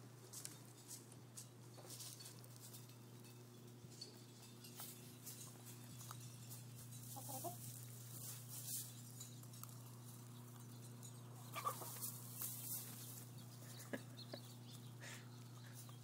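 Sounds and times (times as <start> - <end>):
pecking and rustling in straw: 0.0 - 16.0
steady low hum: 0.0 - 16.0
hens clucking: 7.0 - 8.9, 9.5 - 16.0.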